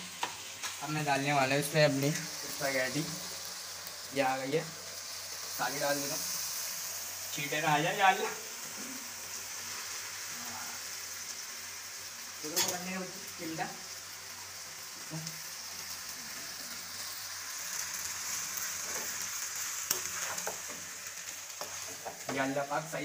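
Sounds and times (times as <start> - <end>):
noodles sizzling in a wok: 0.0 - 23.0
spatula stirring in wok: 18.6 - 22.4.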